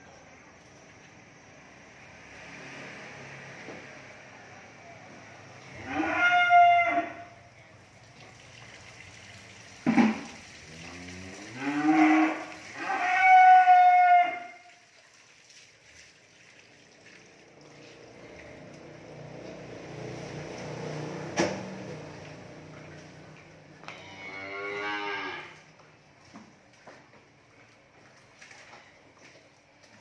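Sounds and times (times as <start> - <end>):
cattle mooing: 5.8 - 7.2, 10.7 - 14.5, 23.8 - 25.6.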